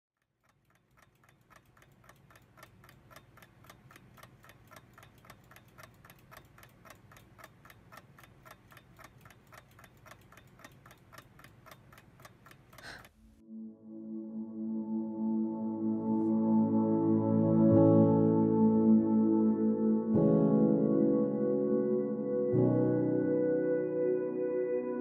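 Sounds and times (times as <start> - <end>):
clock ticking quickly: 0.2 - 13.2.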